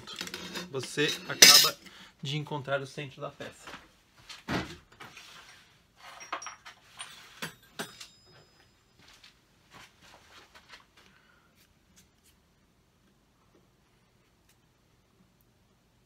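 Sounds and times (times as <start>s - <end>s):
metal tools clinking: 0.0s - 1.9s, 6.0s - 8.6s.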